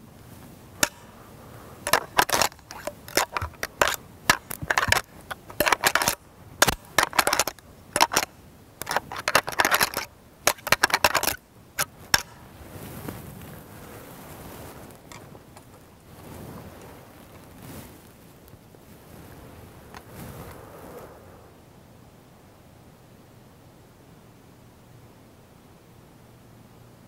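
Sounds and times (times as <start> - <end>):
antlers clashing and grinding: 0.8 - 1.2, 1.8 - 12.3.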